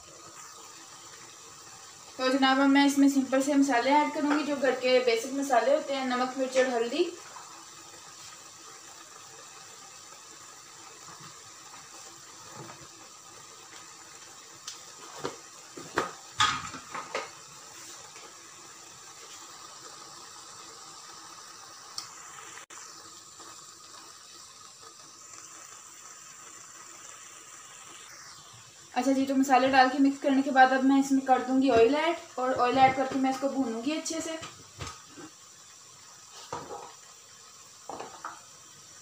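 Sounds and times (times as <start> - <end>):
meat hissing in a wok: 0.0 - 39.0
click: 21.9 - 22.1.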